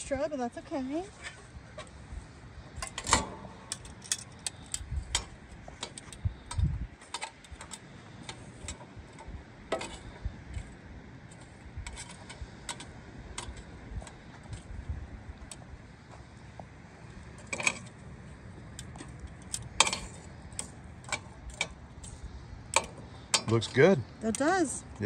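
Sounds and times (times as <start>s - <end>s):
charcoal briquettes clicking: 18.6s - 25.0s.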